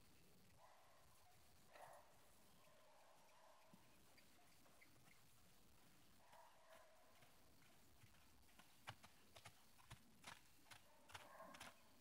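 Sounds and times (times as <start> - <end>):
horse hoofbeats on gravel: 6.3 - 12.0.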